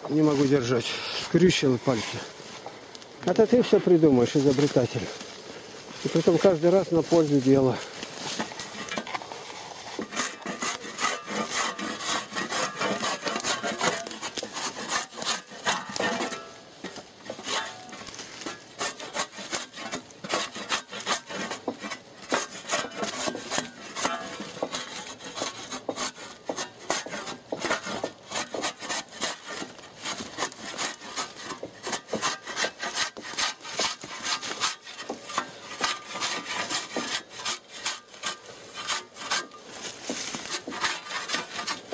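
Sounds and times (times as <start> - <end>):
shovel scraping bark off log: 0.0 - 41.9.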